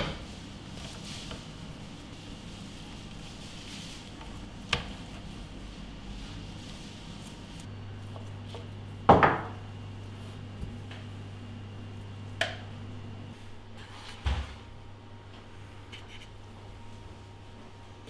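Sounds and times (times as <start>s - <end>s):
low steady hum: 0.0s - 18.0s
knocks on cutting board: 9.1s - 9.6s.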